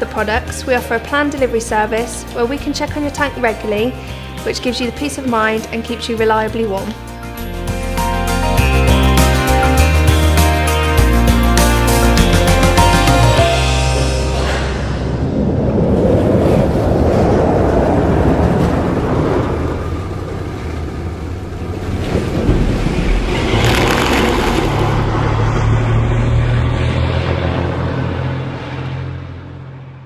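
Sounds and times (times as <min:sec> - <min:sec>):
diesel boat engine droning: 0:07.4 - 0:30.0
rushing water and surf: 0:11.8 - 0:29.4
sharp splash: 0:21.8 - 0:26.0.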